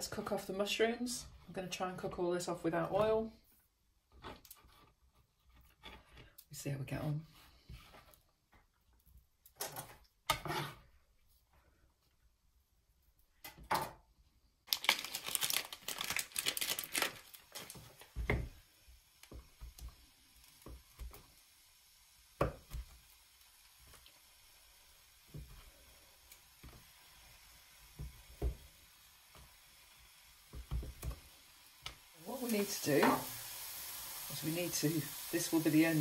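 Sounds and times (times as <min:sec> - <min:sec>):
crinkling tearing rustle: 0:14.7 - 0:18.2.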